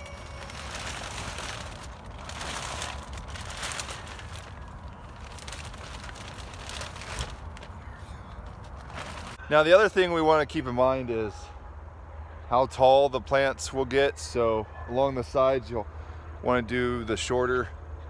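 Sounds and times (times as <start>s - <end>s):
plastic sheeting crinkling: 0.0s - 9.4s
steady low rumble: 0.4s - 9.4s.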